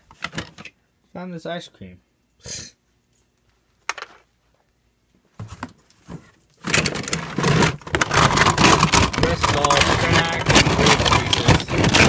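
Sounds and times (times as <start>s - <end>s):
plastic toy track pieces clattering: 6.6s - 12.0s.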